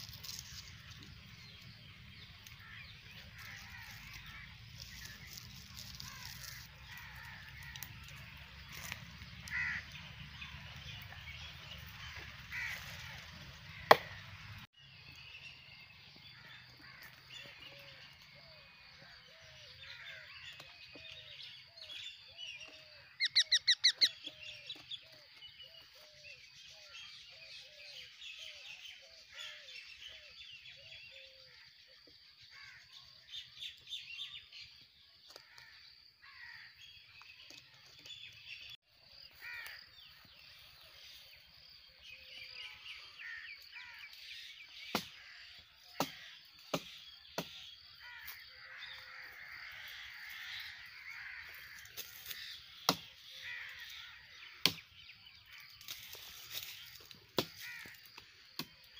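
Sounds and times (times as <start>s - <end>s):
birds chirping: 0.0s - 58.9s
loud harsh bird calls: 2.5s - 10.6s, 21.8s - 25.1s
low repeated bird call: 18.6s - 31.6s.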